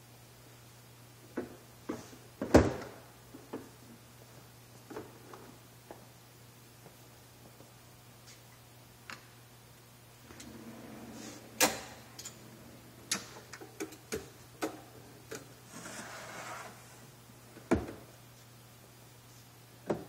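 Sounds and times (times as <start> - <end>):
drawer rolling on metal slides: 10.2 - 13.6, 15.7 - 17.0.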